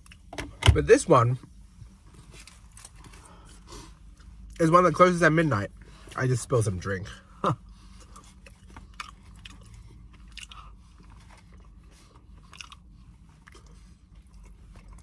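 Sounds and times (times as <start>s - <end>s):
faint low hum: 0.0s - 15.0s
person chewing: 7.7s - 15.0s.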